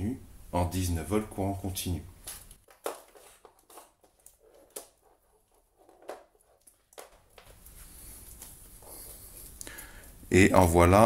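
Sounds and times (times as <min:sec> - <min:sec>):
cables rustling: 0:02.2 - 0:10.9.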